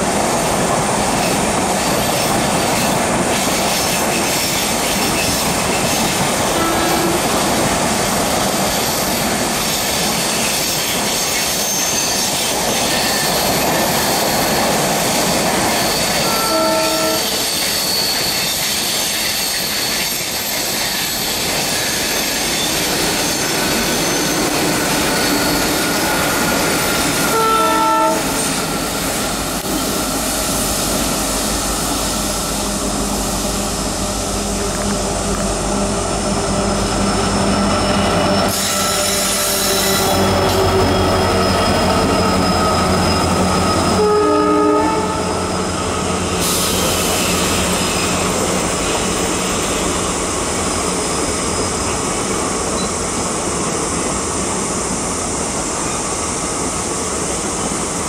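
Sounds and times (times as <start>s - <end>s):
diesel locomotive engine hum: 0.0s - 11.2s, 18.4s - 58.0s
train wheels squealing: 1.1s - 54.4s
train horn blasts: 6.4s - 7.6s, 16.2s - 17.4s, 27.2s - 28.6s, 43.8s - 45.6s.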